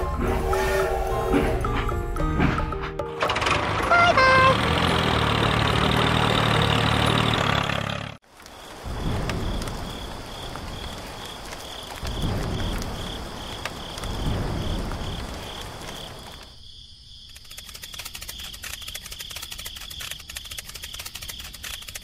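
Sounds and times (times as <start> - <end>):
rain: 8.2 - 16.6
crickets chirping: 8.2 - 22.0
low thunder rumbles: 8.7 - 16.4.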